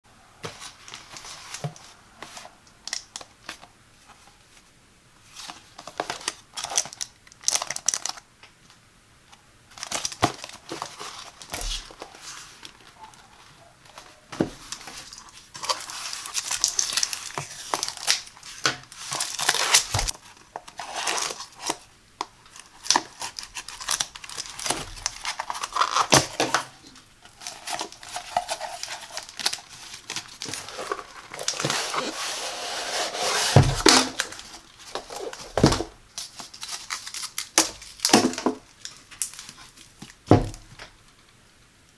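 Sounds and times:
cardboard tearing and crinkling: 9.7 - 12.6, 14.5 - 21.9, 22.5 - 40.4
hands handling cardboard box: 27.3 - 40.9.

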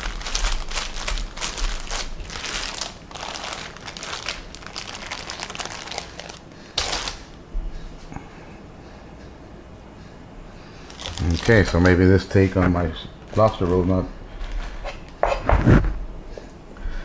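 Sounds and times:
plastic wrap crinkling: 0.0 - 7.4, 10.8 - 14.8.

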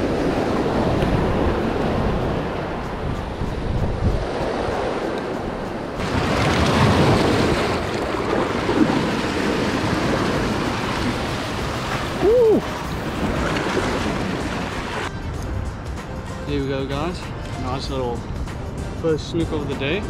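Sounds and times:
surf washing against rocks: 0.0 - 15.1
wind on microphone: 0.0 - 15.4.

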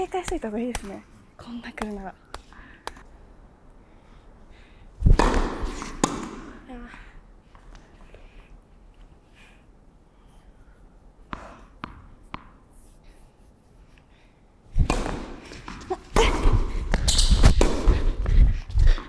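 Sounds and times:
tennis ball bouncing on court: 0.2 - 1.0, 5.1 - 6.5, 11.3 - 12.6, 14.8 - 18.0
racket striking ball: 0.3 - 0.9, 5.1 - 6.6, 14.8 - 18.1.

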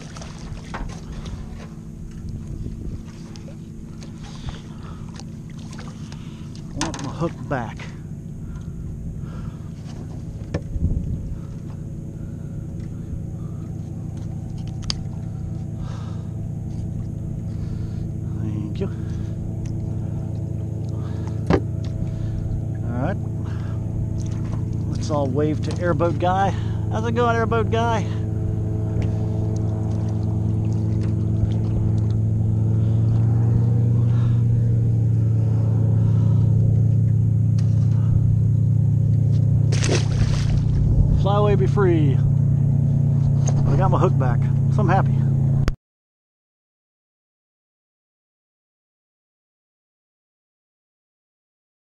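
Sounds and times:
airboat engine and propeller drone: 0.0 - 45.8.

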